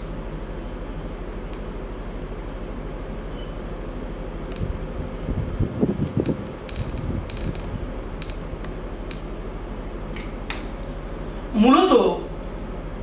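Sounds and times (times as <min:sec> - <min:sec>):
marker scratching on whiteboard: 0:00.0 - 0:02.7.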